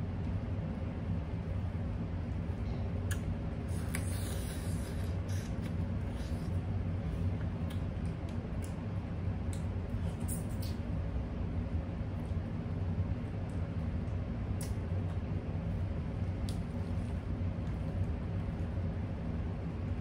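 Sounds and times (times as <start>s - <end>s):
wet sucking sound: 3.7s - 6.6s.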